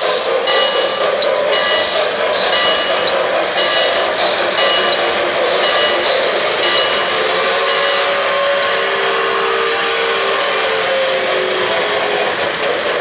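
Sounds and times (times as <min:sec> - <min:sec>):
model train cars rumbling: 0:00.0 - 0:13.0.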